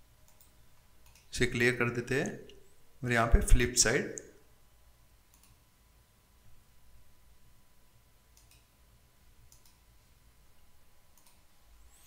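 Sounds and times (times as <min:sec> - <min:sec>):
faint steady hum: 0:00.0 - 0:12.0
computer mouse clicks: 0:00.2 - 0:01.3, 0:05.3 - 0:05.6, 0:08.3 - 0:08.8, 0:09.5 - 0:09.8, 0:11.1 - 0:11.4.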